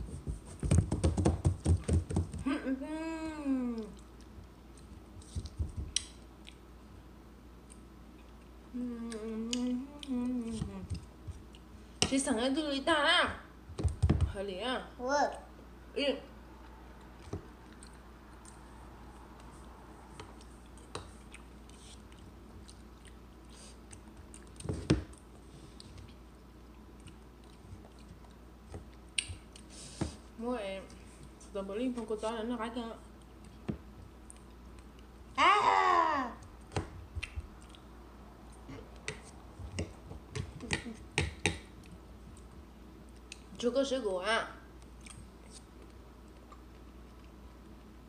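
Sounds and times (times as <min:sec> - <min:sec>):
steady low hum: 0:00.0 - 0:48.0
people chewing: 0:17.0 - 0:30.0, 0:33.1 - 0:35.1, 0:37.2 - 0:40.0.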